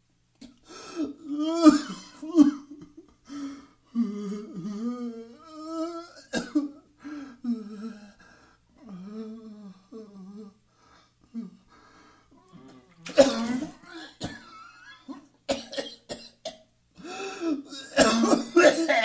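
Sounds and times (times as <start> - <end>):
person retching: 12.6 - 14.1, 17.9 - 19.0.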